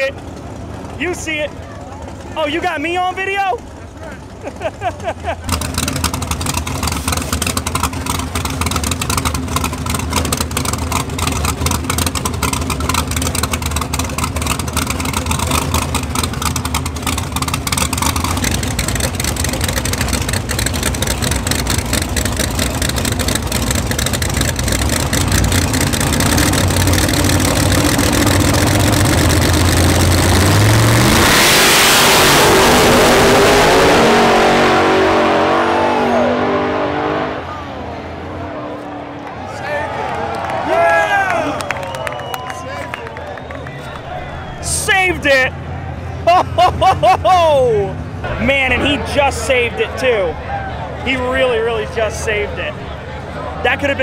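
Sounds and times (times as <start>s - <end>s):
race car engine idling and revving: 0.0s - 54.0s.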